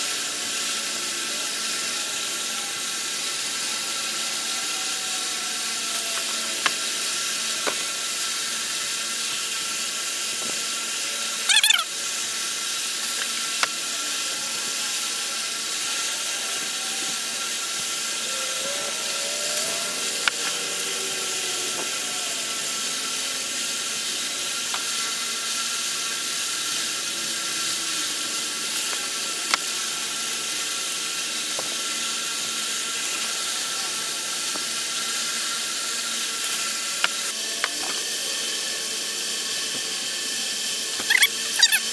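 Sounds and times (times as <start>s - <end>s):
short wavering squeak: 11.4s - 11.9s, 41.0s - 41.9s.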